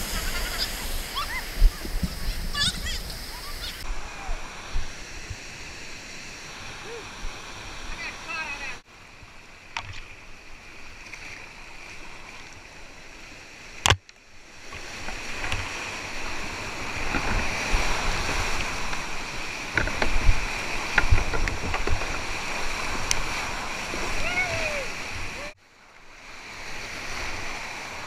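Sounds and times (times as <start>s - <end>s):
whitewater rushing: 0.0s - 8.9s, 15.3s - 25.6s
water slapping thumps: 19.7s - 23.3s.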